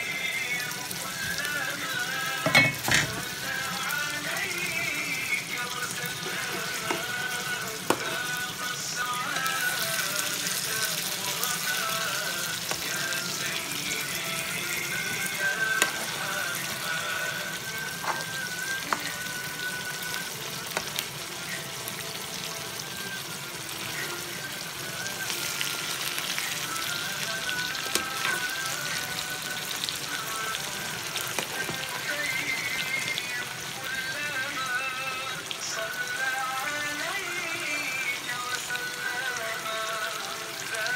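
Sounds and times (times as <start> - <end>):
curry sizzling in a frying pan: 0.0 - 40.9
soft background music: 0.0 - 40.9.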